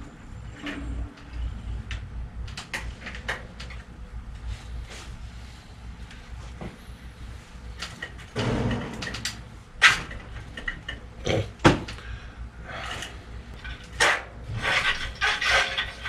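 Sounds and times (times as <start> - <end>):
sharp knocks: 8.4 - 10.1.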